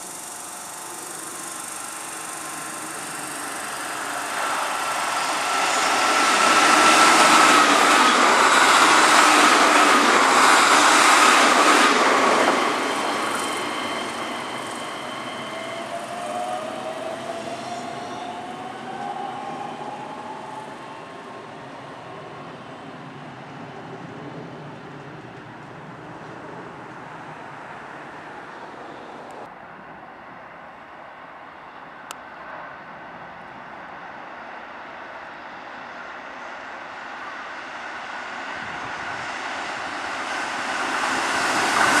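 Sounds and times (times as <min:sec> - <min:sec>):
electric motor whine rising: 0:00.0 - 0:08.7
train wheel and rail noise: 0:00.0 - 0:42.0.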